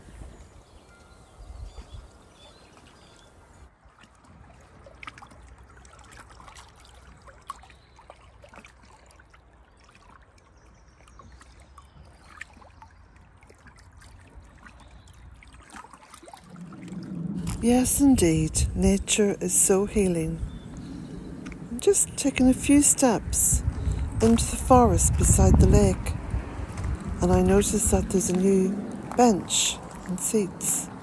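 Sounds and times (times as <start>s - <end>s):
small waves lapping: 0.0s - 31.0s
low rumble: 16.4s - 22.6s, 23.2s - 31.0s.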